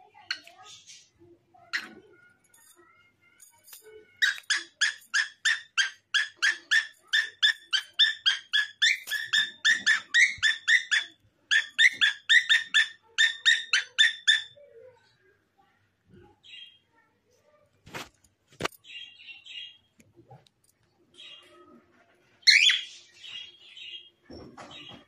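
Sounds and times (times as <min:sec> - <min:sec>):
parrot chirping: 0:04.2 - 0:14.6, 0:22.4 - 0:24.1.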